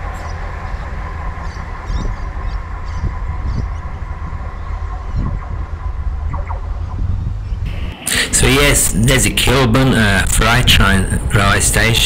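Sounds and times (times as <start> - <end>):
train carriages rumbling on rails: 0.0 - 6.3.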